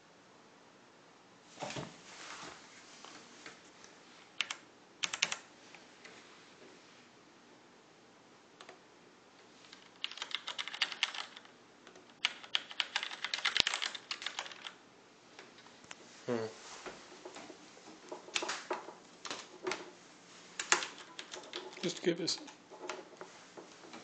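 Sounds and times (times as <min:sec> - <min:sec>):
computer keyboard typing: 0:04.4 - 0:05.5, 0:09.7 - 0:14.8, 0:17.4 - 0:19.9, 0:20.6 - 0:24.0.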